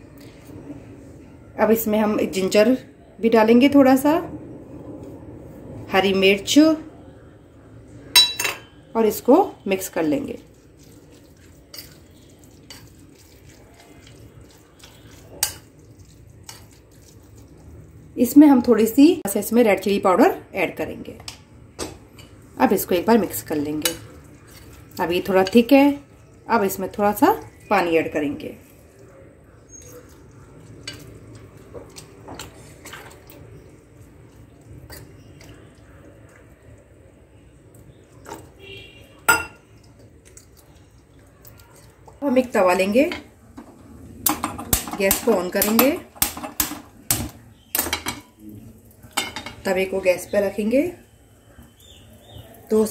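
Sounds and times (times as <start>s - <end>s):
spoon clinking against glass: 8.2s - 8.8s, 39.3s - 39.6s
spoon stirring wet batter: 9.2s - 19.0s, 22.0s - 52.9s
spoon squelching in batter: 10.4s - 18.0s.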